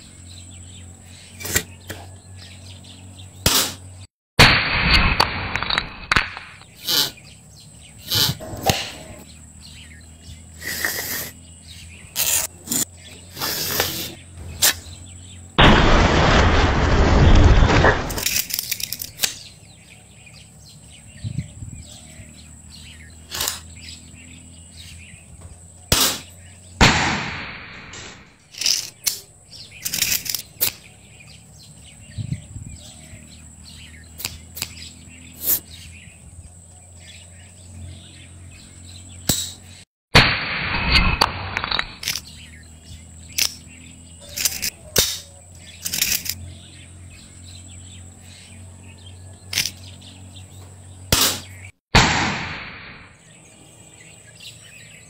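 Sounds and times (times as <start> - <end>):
birds chirping: 0.0 - 4.1, 5.8 - 27.0, 27.7 - 39.9, 41.6 - 51.8, 52.9 - 55.0
loud bursts of noise: 4.4 - 6.2, 13.3 - 18.5, 40.1 - 42.1
bamboo and wood clicks: 18.0 - 19.4, 28.5 - 30.8, 34.2 - 34.8, 44.3 - 46.4.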